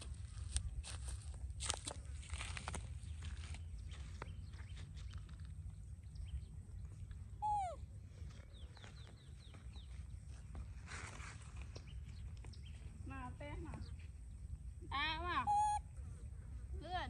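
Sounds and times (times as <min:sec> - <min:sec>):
baby monkey crying: 0:07.4 - 0:07.8, 0:15.4 - 0:15.8.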